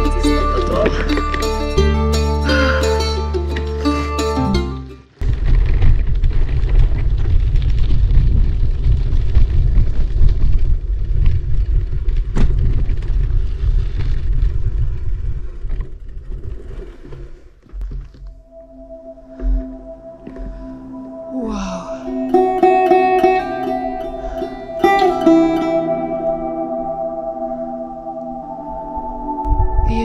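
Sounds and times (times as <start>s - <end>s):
bike tyre and frame rattle: 5.1s - 18.4s
wind buffeting microphone: 5.2s - 21.4s, 22.0s - 30.0s.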